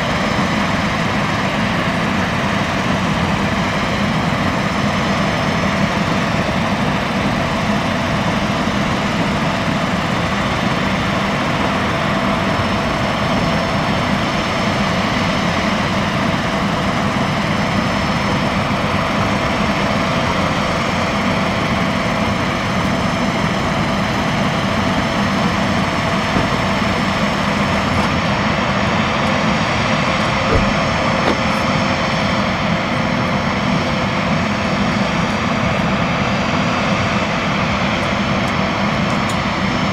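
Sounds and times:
jet airliner engine whine: 0.0s - 39.9s
brief knock: 30.5s - 31.5s.

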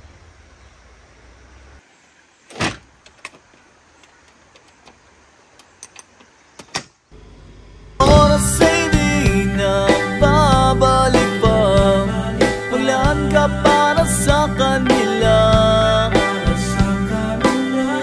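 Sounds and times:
low steady rumble: 7.2s - 12.4s
loud knock: 8.0s - 9.2s.

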